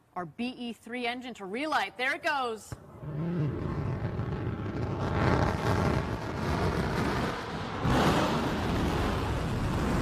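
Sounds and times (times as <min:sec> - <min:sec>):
rocket engine firing: 0:02.8 - 0:10.0.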